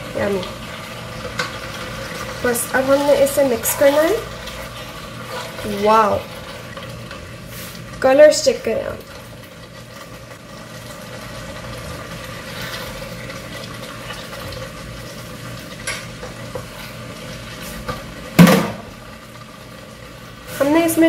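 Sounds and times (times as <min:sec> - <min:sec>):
sauce sizzling: 0:00.0 - 0:21.0
wooden spoon stirring in pot: 0:00.2 - 0:18.2
sharp knock: 0:18.4 - 0:18.8.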